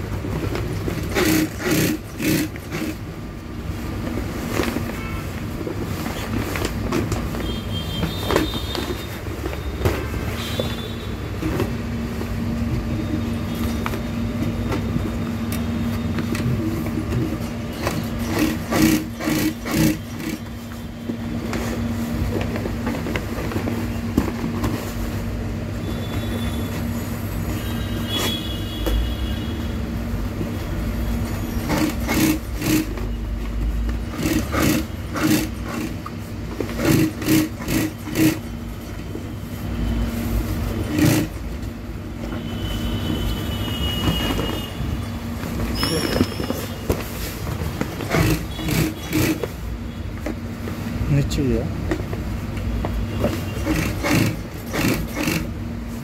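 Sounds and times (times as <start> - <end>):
sewing machine motor hum: 0.8 - 3.0, 16.6 - 20.6, 31.6 - 33.1, 33.9 - 38.5, 40.8 - 41.4, 47.6 - 49.6, 53.1 - 55.6.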